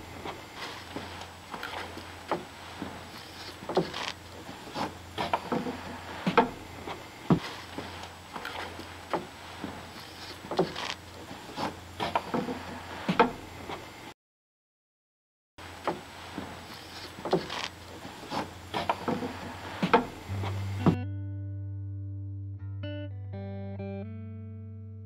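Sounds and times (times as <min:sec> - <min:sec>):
wood knocking and scraping on wood: 0:00.0 - 0:13.9, 0:15.8 - 0:21.0
steady low hum: 0:00.0 - 0:14.1, 0:15.6 - 0:21.0.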